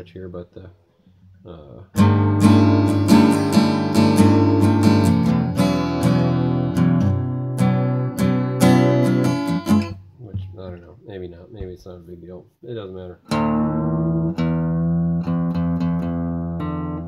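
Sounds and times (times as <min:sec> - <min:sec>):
acoustic guitar strumming chords: 0:02.0 - 0:10.8, 0:13.3 - 0:17.0.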